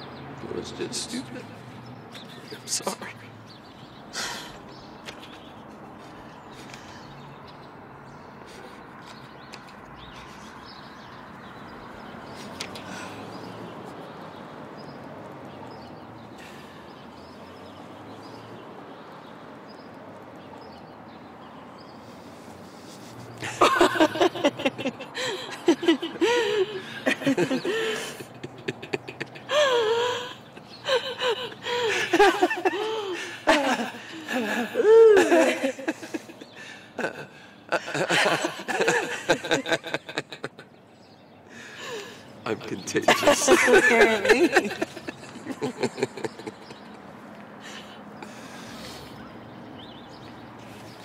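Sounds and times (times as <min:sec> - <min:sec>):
faint outdoor hush: 0:00.0 - 0:51.0
woman laughing through tears: 0:23.4 - 0:36.4.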